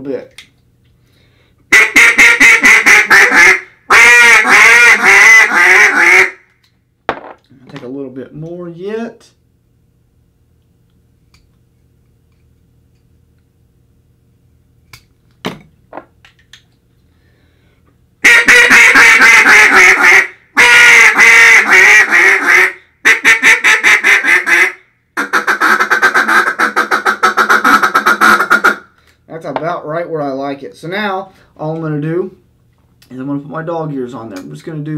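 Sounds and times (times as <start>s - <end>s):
duck call quacking: 1.7s - 6.4s, 18.2s - 28.9s.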